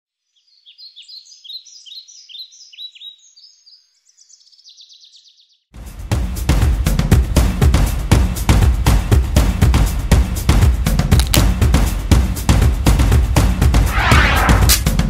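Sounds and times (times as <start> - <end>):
small birds chirping: 0.1 - 5.7
loud music with drum beat: 5.8 - 14.0.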